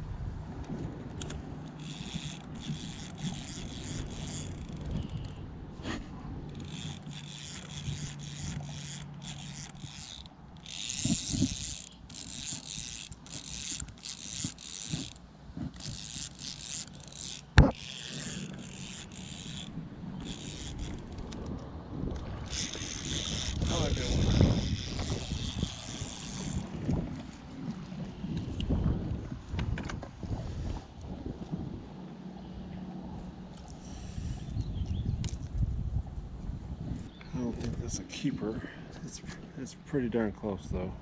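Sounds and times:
fishing reel cranking: 0:01.2 - 0:05.4, 0:06.4 - 0:27.4, 0:33.5 - 0:34.6.

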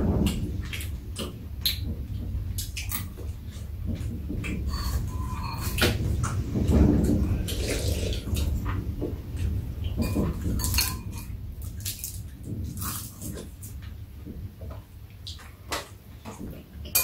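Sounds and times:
mouth noises of eating: 0:07.3 - 0:08.6.

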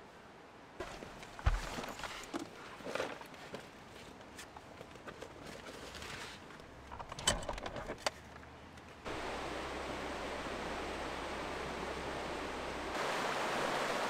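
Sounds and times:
rustling of gear: 0:00.8 - 0:08.9
flowing water rushing: 0:09.0 - 0:14.0.

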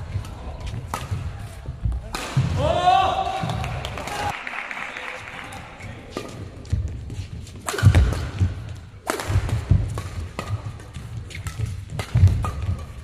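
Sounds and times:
rackets striking shuttlecock: 0:00.1 - 0:02.6, 0:07.5 - 0:13.0.

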